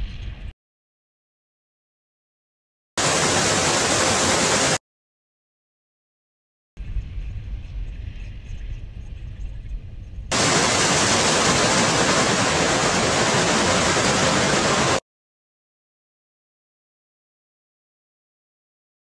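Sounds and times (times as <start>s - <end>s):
water spraying over car: 3.0s - 4.8s, 10.3s - 15.0s.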